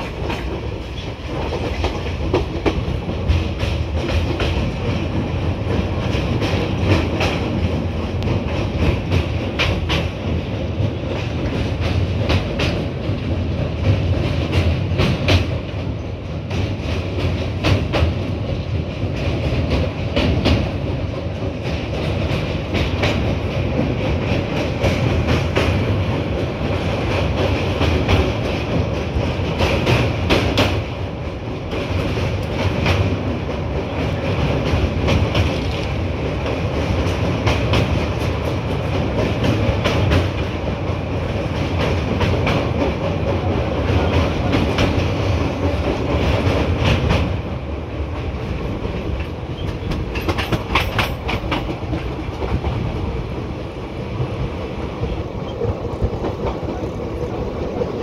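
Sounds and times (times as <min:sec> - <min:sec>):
train rumbling over bridge: 0:00.0 - 0:58.0.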